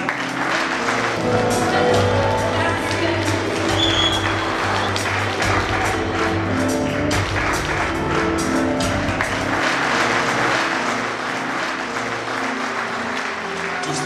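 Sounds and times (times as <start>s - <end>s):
audience applause: 0.0s - 14.0s
music with bass line: 1.2s - 9.7s.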